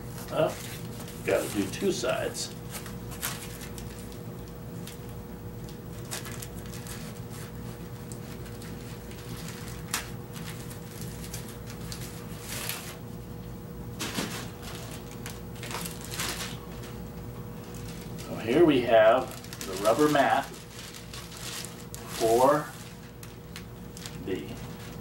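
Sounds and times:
steady hum: 0.0 - 25.0
paper rustling: 2.7 - 4.2, 6.0 - 13.0, 14.0 - 17.0, 17.6 - 25.0.

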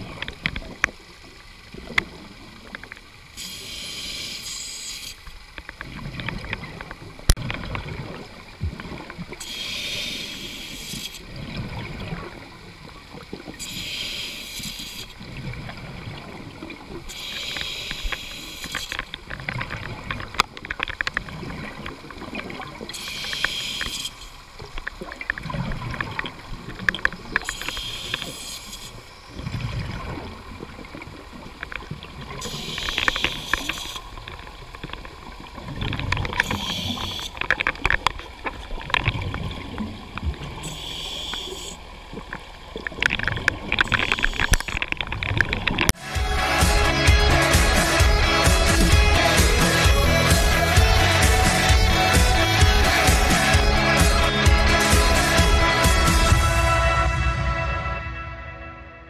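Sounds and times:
exhaled bubbles rumbling: 0.0 - 3.4, 5.4 - 9.6, 11.2 - 13.8, 15.1 - 17.7, 19.0 - 23.1, 24.4 - 27.7, 28.3 - 40.8, 41.8 - 51.0
regulator inhalation hiss: 3.4 - 5.3, 9.4 - 11.2, 13.6 - 15.2, 17.1 - 19.1, 22.9 - 24.4, 27.4 - 29.2, 32.4 - 34.2, 36.4 - 37.4, 40.6 - 41.8, 43.9 - 44.8, 46.0 - 57.0.

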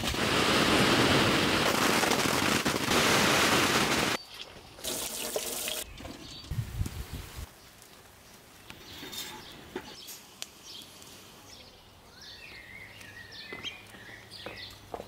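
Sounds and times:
juice streaming into a metal bowl: 4.8 - 6.2.

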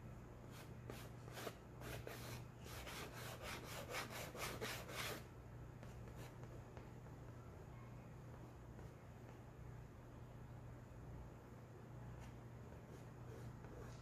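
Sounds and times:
chalk scratching on board: 0.5 - 5.2.

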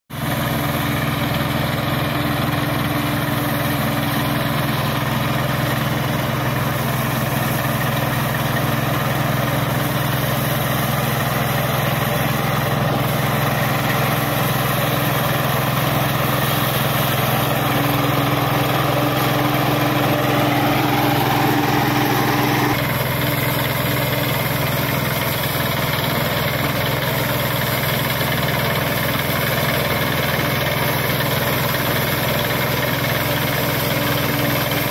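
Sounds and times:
combine harvester engine drone: 0.2 - 34.9.

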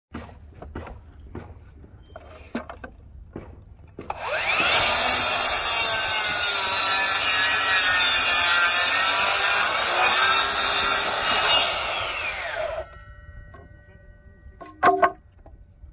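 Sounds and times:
saw blade cutting wood: 4.0 - 12.9
miter saw motor whine: 10.4 - 13.0.

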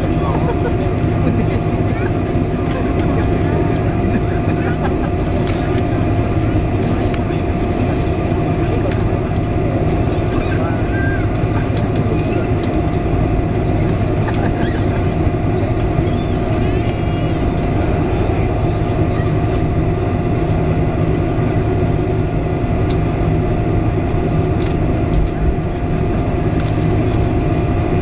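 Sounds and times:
aircraft engine hum: 0.0 - 28.0
steady mid-pitched tone: 15.2 - 24.4.

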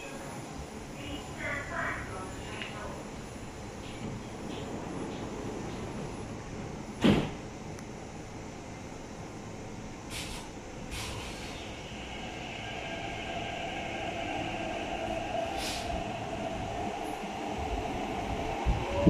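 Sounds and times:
train rumbling: 0.0 - 19.0
short hisses of air: 10.1 - 11.6, 15.6 - 15.9.

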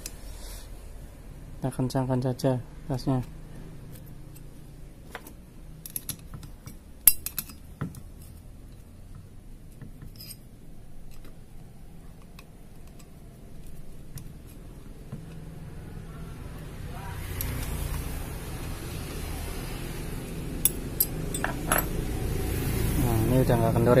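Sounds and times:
metal tools clinking: 5.8 - 8.4, 10.0 - 11.3, 20.6 - 22.0.

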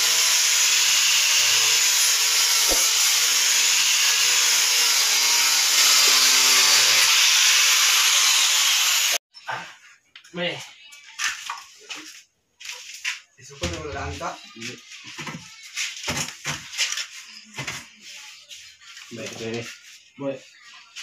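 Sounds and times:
angle grinder sanding wood: 0.0 - 9.2.

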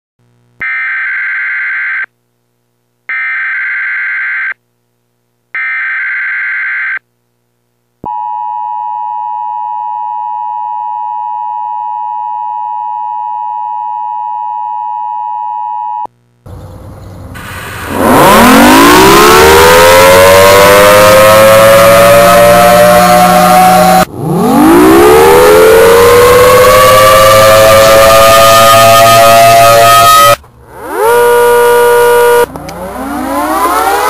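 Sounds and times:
noisy sound: 16.1 - 34.0
steady attention tone: 18.0 - 34.0.

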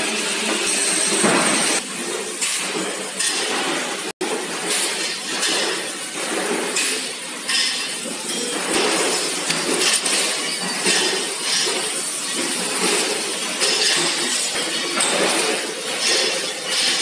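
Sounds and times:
metal-working machinery din: 0.0 - 17.0
metallic clinks and clatter: 7.5 - 17.0.

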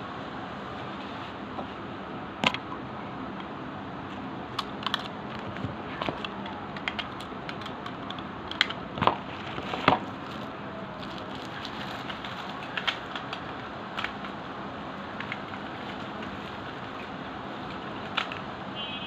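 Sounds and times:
small clicks and ticks: 4.1 - 8.8, 11.0 - 14.4, 15.2 - 18.5.

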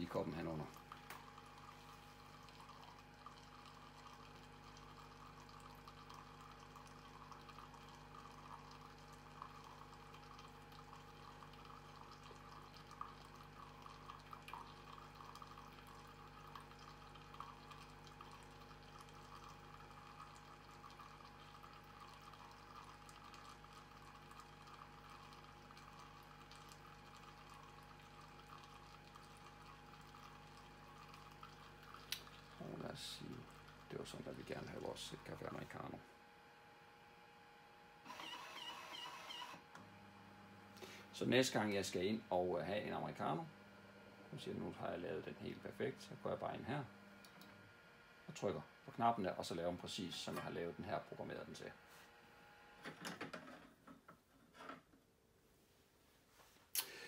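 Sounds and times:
coffee machine humming: 0.0 - 53.7
water trickling into glass: 0.1 - 35.4.

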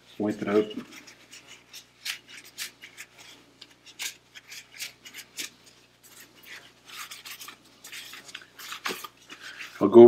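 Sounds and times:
paper towel rubbing metal: 0.0 - 10.0.

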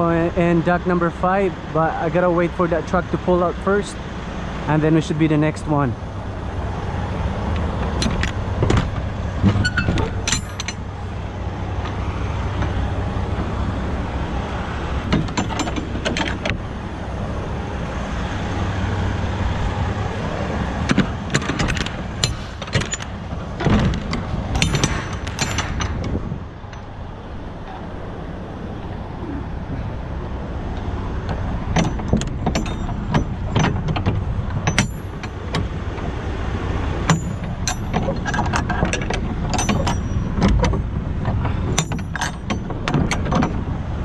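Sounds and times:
truck diesel engine running: 0.0 - 44.0
sharp knocks and clatters: 7.6 - 10.9, 15.0 - 16.7, 20.8 - 26.9, 30.8 - 36.2, 37.0 - 43.7.

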